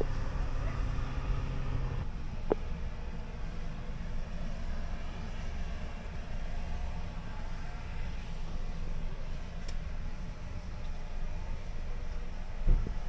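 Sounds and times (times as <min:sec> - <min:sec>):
low street rumble: 0:00.0 - 0:13.0.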